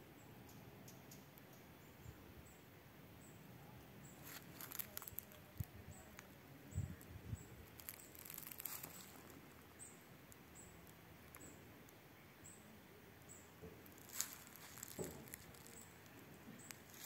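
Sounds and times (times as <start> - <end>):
crackly rustling: 4.0 - 12.3, 13.4 - 17.0.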